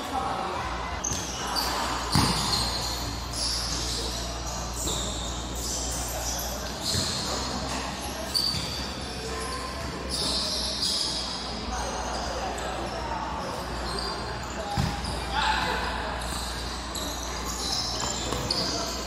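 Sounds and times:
shoes squeaking on court floor: 0.6 - 19.0
ball kicked and bouncing: 2.1 - 2.6, 14.8 - 15.1.

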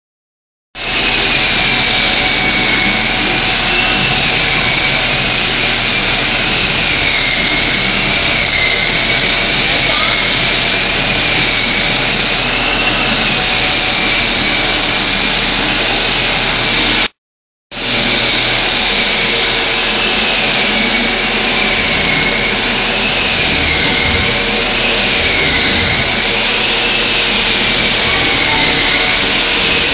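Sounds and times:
machine noise with whine: 0.8 - 29.9.

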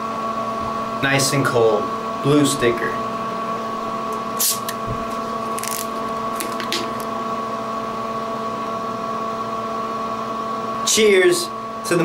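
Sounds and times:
room ventilation hum: 0.0 - 12.0
bottle cap crackling and hissing: 4.4 - 4.8.

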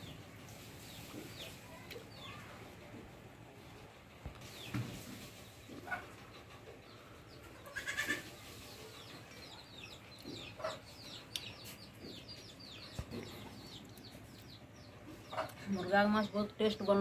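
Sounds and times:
goat bleating: 7.6 - 8.3.

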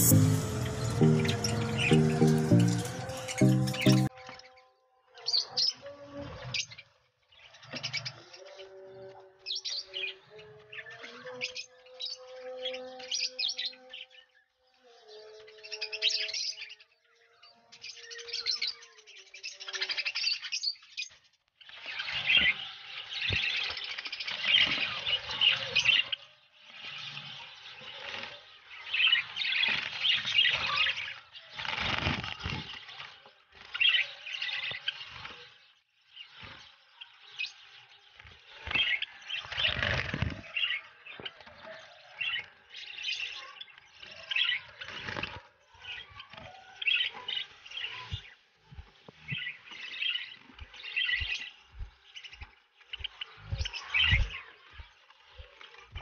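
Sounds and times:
budgies chattering and chirping: 21.7 - 48.4, 49.0 - 56.0.

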